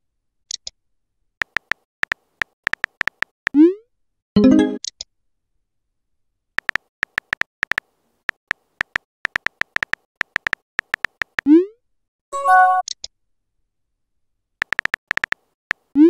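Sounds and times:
smartphone keyboard tap clicks: 1.4 - 3.3, 6.6 - 7.8, 8.8 - 11.4, 14.6 - 15.8
notification chime: 4.4 - 4.8.

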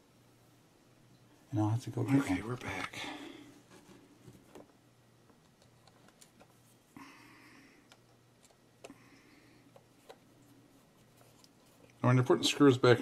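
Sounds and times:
faint low hum: 0.0 - 13.0
soft rustle: 9.9 - 12.7.

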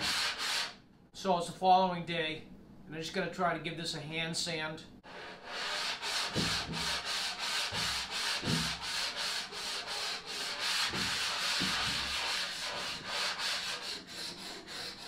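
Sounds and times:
sandpaper scrubbing back and forth: 0.0 - 0.7, 5.1 - 15.0.

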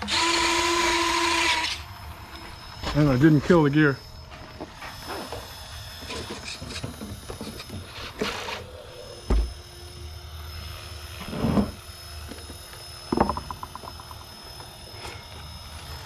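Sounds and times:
dull thump: 9.3 - 9.5.

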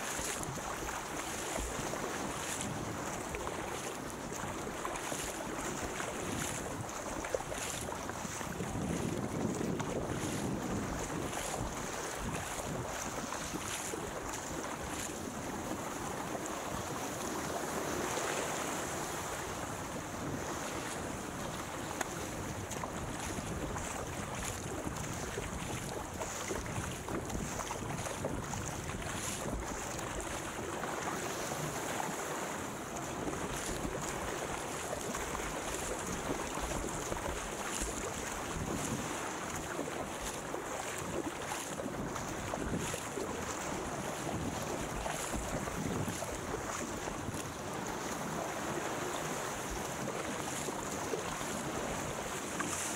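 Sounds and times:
water splashing along hull: 0.0 - 52.9
wind buffeting microphone: 6.0 - 15.8, 19.7 - 30.6, 33.2 - 47.6.

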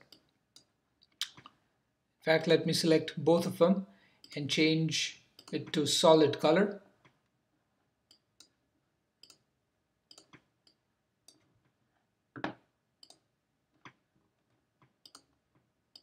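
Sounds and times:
computer mouse clicks: 5.4 - 5.8, 8.1 - 8.6, 9.2 - 9.4, 10.1 - 11.5, 12.4 - 13.2, 14.9 - 16.0.

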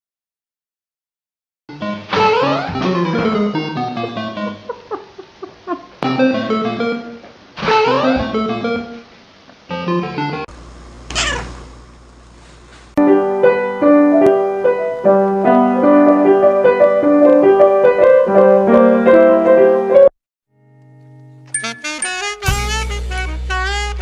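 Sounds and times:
piano melody over low notes: 13.0 - 24.0.

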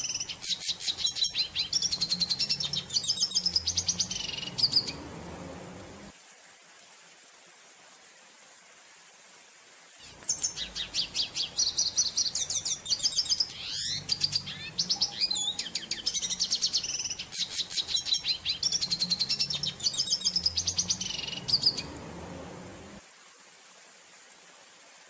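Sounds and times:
bird singing twittering song: 0.0 - 5.9, 10.0 - 22.6.

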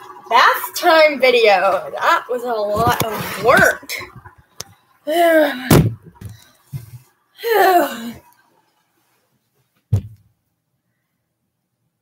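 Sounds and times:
woman groaning: 7.4 - 8.2
short thump: 9.9 - 10.3.

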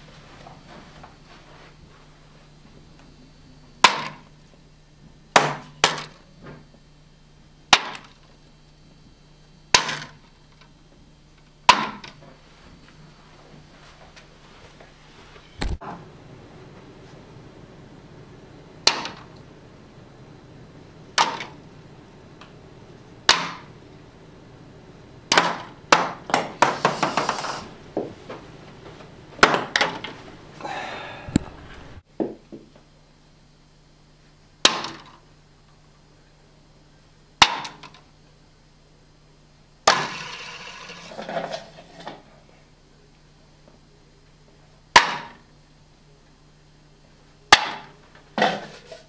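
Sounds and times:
ping-pong balls knocking on cups: 23.3 - 23.7, 25.3 - 28.2.

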